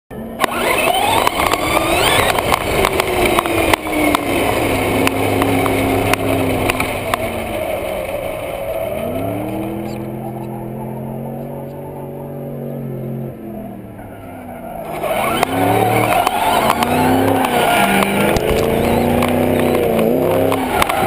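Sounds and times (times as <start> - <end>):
electric motor and gears whining: 0.1 - 14.0, 14.8 - 21.0
chassis clicks and knocks: 0.4 - 10.6, 14.9 - 21.0.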